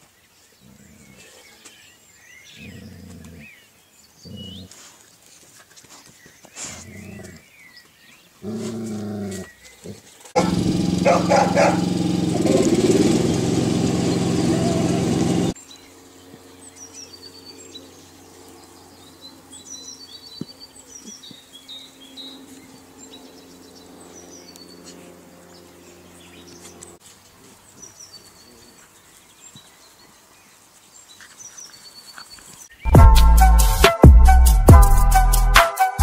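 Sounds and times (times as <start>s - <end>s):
small birds chirping: 0.0s - 32.9s
loud music: 32.9s - 36.0s.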